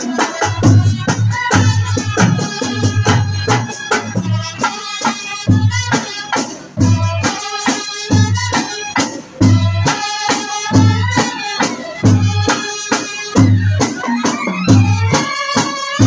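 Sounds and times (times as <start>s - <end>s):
brass band playing a melody: 0.0s - 16.0s
hand drum beats: 0.0s - 16.0s
bass drum beats: 0.5s - 4.5s.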